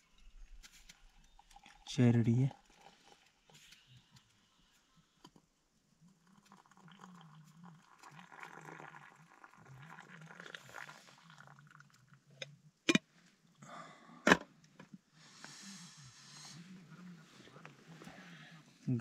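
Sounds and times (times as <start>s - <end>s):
tea pouring into metal mug: 0.5s - 5.1s, 6.0s - 12.3s.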